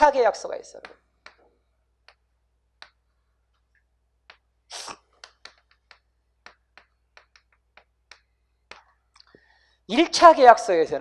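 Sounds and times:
chalk on blackboard: 4.3s - 8.3s.

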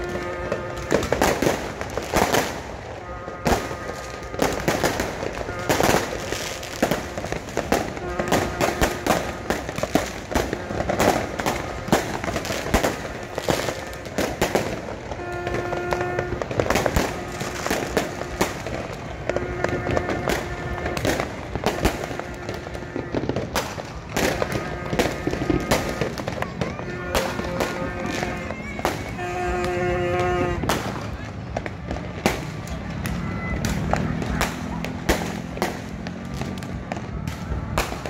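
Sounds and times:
fireworks bursting and crackling: 0.0s - 38.0s
large crowd voices: 0.0s - 38.0s
horn-like tone: 3.0s - 4.7s, 15.1s - 23.4s, 26.8s - 30.6s.

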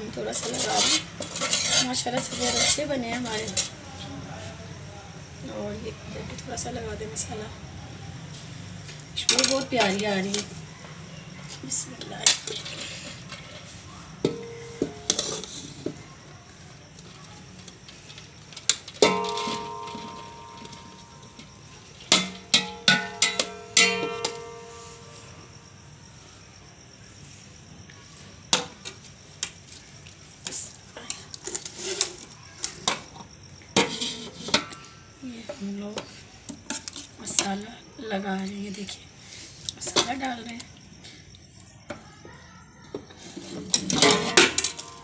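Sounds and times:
spoon knocking and scraping pot: 0.4s - 3.7s, 14.2s - 16.0s, 18.9s - 25.2s
ringing metallic clangs: 14.2s - 15.4s, 19.0s - 25.6s, 43.8s - 45.0s.

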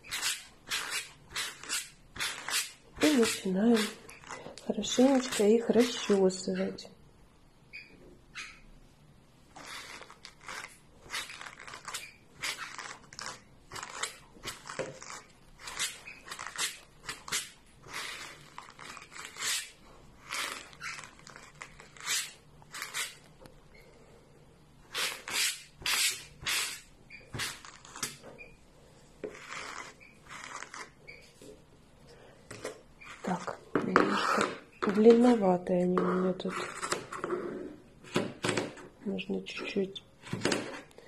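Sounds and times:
brush scratching through cord: 0.0s - 6.8s, 9.5s - 23.3s, 24.9s - 28.5s, 29.2s - 31.6s, 33.0s - 37.9s.

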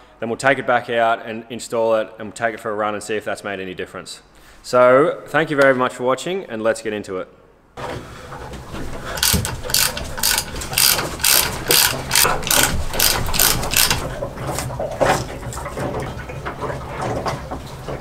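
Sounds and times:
ratchet wrench clicking: 9.2s - 14.1s.

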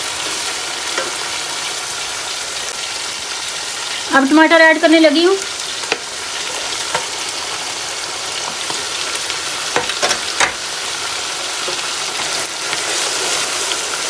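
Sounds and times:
food sizzling in oil: 0.0s - 14.0s
spoon knocking against pot: 9.8s - 10.6s.

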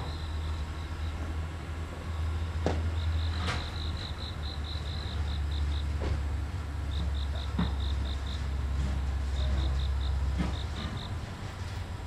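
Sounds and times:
machine engine rumbling: 0.0s - 12.0s
machine knocking on rails: 6.9s - 8.2s, 8.8s - 11.2s.

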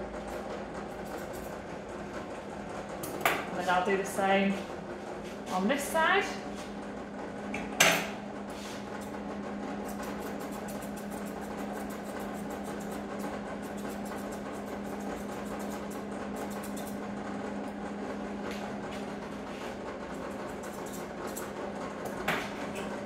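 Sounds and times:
steady electric hum: 0.0s - 23.0s
shears snipping hair: 0.9s - 1.6s, 9.8s - 17.0s, 18.4s - 22.9s.

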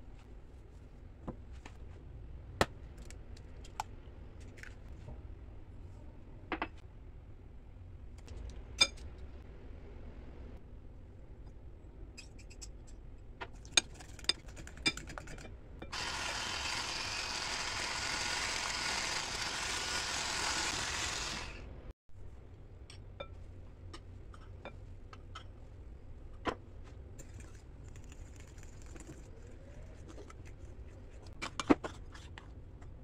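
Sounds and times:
electric hand mixer running: 15.9s - 21.7s.

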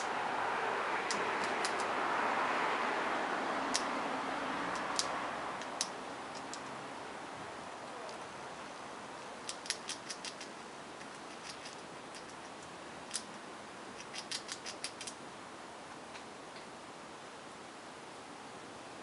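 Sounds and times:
outdoor hiss: 0.0s - 19.0s
squirrel gnawing clicks: 1.0s - 2.0s, 3.7s - 4.0s, 4.6s - 6.8s, 9.2s - 15.2s.

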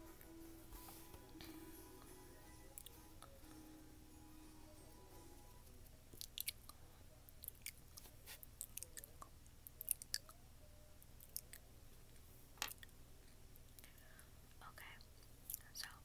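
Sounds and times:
wet mouth clicks and smacks: 6.2s - 6.8s.

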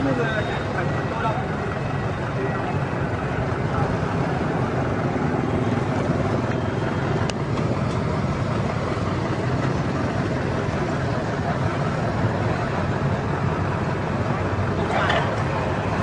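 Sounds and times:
street traffic passing: 0.0s - 16.0s.

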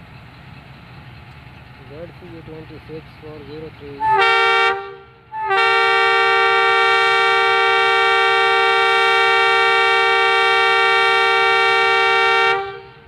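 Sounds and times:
locomotive air horn blast: 4.0s - 13.0s.

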